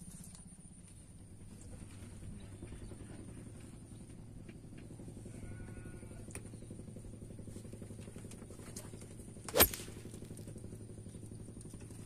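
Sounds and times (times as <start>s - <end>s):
steady low drone: 6.2s - 12.0s.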